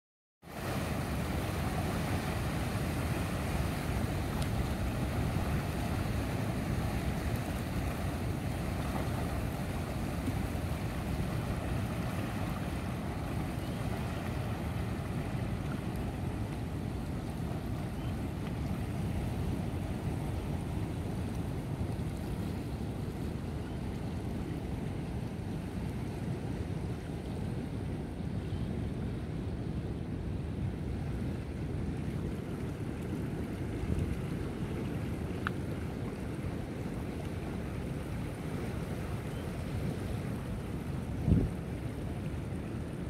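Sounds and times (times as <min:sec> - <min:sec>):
wind: 0:00.4 - 0:43.0
sea waves washing against rocks: 0:00.5 - 0:22.0.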